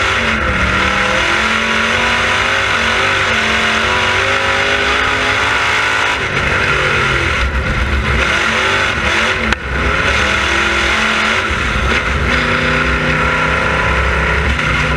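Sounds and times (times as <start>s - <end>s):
race car engine: 0.0s - 14.9s.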